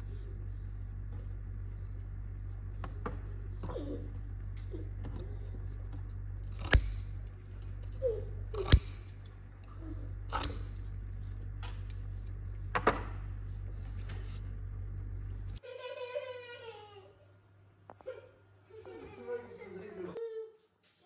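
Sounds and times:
low hum: 0.0s - 15.6s
tweezers clicking on metal: 6.5s - 7.2s, 8.5s - 9.3s, 10.3s - 12.0s.

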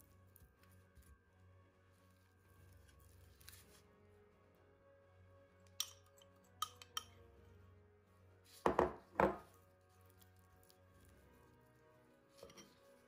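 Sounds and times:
faint background music: 0.0s - 13.0s
spoon clinking on glass dish: 5.8s - 7.2s.

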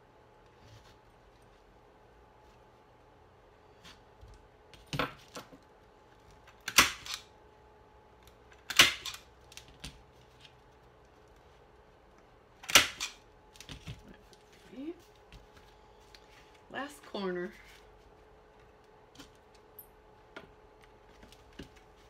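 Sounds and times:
staple gun firing: 8.7s - 9.2s, 12.6s - 13.2s.

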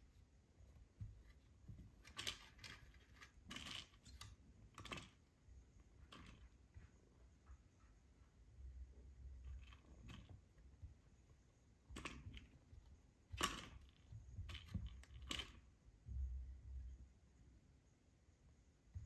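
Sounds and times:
kitten claws scraping plastic toy: 2.0s - 5.2s.

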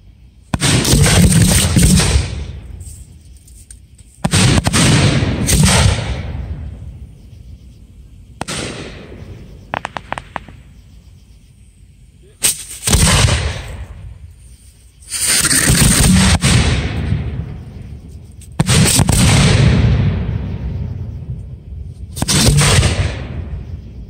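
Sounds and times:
fireworks booming: 0.4s - 3.2s, 4.2s - 7.3s, 8.3s - 10.9s, 12.2s - 14.3s, 15.0s - 23.8s
sharp firework crack: 0.5s - 3.0s, 4.2s - 6.9s, 8.4s - 10.8s, 12.2s - 14.2s, 15.0s - 17.6s, 18.5s - 20.6s, 22.1s - 23.6s
crackling pops: 8.4s - 10.8s.

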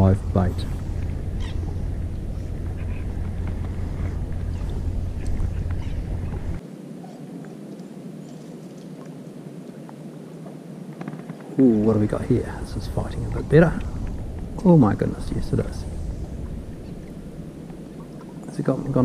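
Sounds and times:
quiet hiss: 0.0s - 19.0s
wind buffeting microphone: 0.0s - 19.0s
fishing rod and line rustling: 0.5s - 19.0s.

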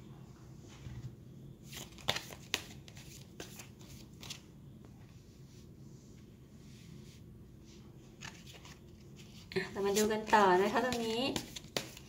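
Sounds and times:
cards tapping and rustling: 1.7s - 4.4s, 8.2s - 12.0s.

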